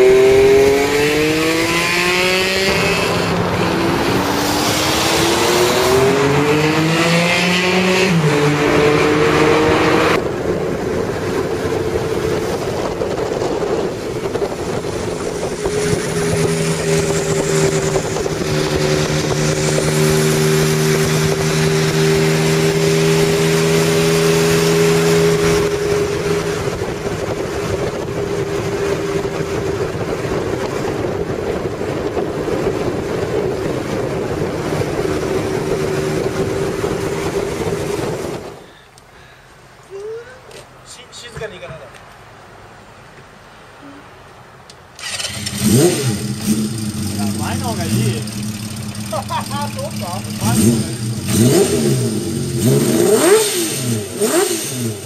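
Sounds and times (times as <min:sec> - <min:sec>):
motorcycle engine cruising: 0:00.0 - 0:38.7, 0:45.0 - 0:55.0
wind noise on microphone: 0:00.0 - 0:38.8.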